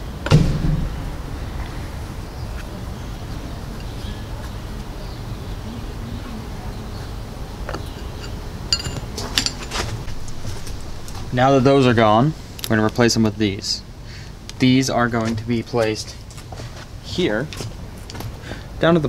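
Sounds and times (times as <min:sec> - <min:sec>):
low background rumble: 0:00.0 - 0:16.2
short metallic clink: 0:08.0 - 0:09.8.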